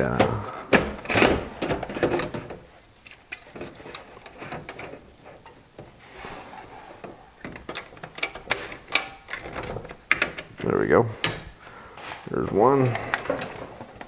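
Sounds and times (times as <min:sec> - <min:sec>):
plastic and metal parts clicking: 0:00.2 - 0:05.9, 0:07.4 - 0:11.5.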